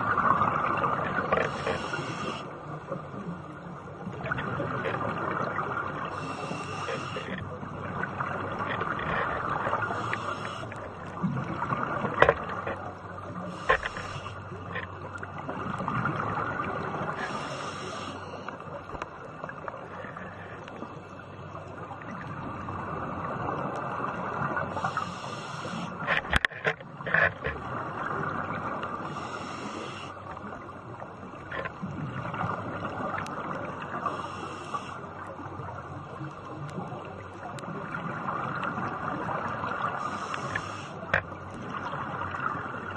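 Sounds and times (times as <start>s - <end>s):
diver breathing through regulator: 1.2s - 2.6s, 6.1s - 7.4s, 9.7s - 10.8s, 13.4s - 14.5s, 17.1s - 18.6s, 24.7s - 26.1s, 29.0s - 30.2s, 34.0s - 35.1s, 39.9s - 41.1s.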